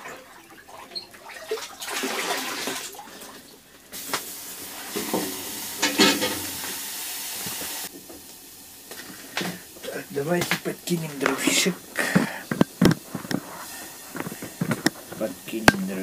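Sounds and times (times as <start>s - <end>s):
water splashing and pouring: 0.0s - 7.9s
pot knocking: 5.0s - 6.6s.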